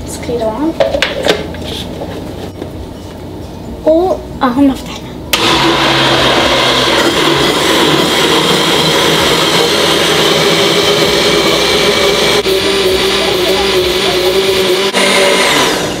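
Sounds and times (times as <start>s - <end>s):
blender running: 5.3s - 16.0s.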